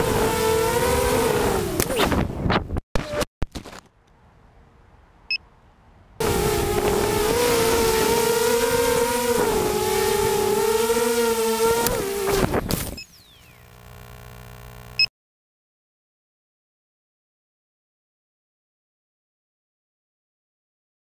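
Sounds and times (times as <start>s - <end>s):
quadcopter motors whining: 0.0s - 2.3s, 6.2s - 15.1s.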